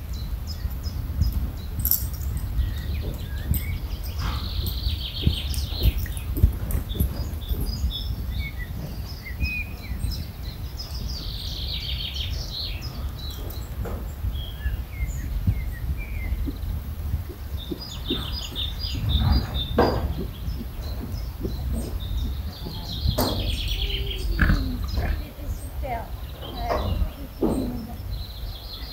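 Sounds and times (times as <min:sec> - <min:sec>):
small birds chirping: 0:00.0 - 0:28.9
steady low rumble: 0:00.0 - 0:28.9
dull thumps: 0:13.4 - 0:28.1.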